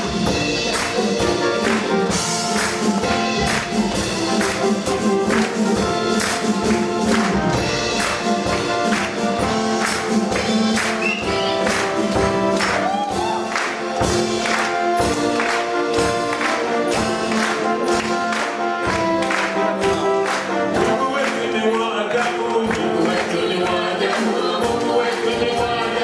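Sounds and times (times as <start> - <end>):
drum kit steady beat: 0.0 - 26.0
keyboard chords: 0.0 - 26.0
children's choir singing: 20.3 - 26.0.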